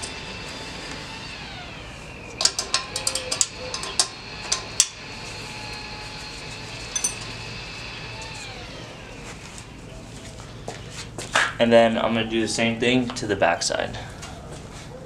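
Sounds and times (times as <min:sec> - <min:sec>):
metal wrench clinking: 0:06.9 - 0:07.3.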